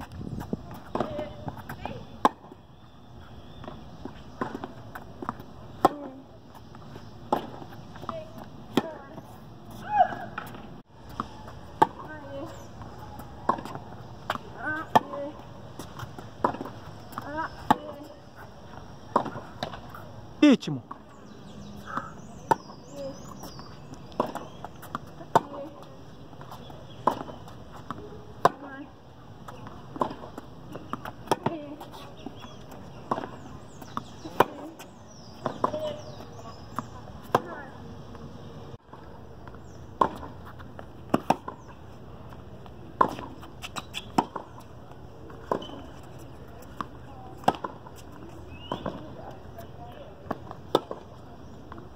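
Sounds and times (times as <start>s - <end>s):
rackets hitting tennis ball: 3.6s - 18.2s, 21.8s - 37.8s, 40.0s - 49.6s.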